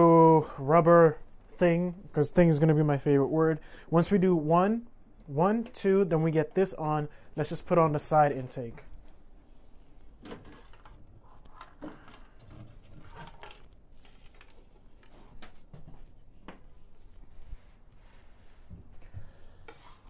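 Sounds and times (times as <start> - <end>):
plastic panel being handled: 10.0 - 16.8.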